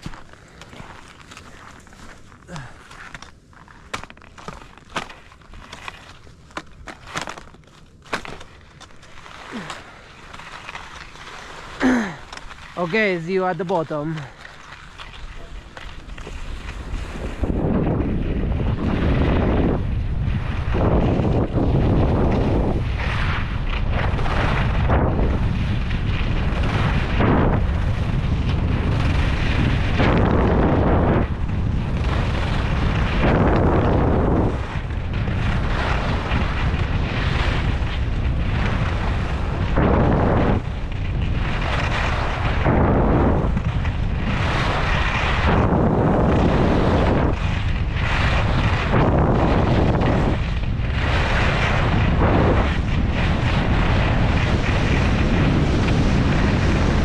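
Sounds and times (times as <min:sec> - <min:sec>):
skis scraping on snow: 0:00.0 - 0:57.0
wind buffeting microphone: 0:15.2 - 0:57.0.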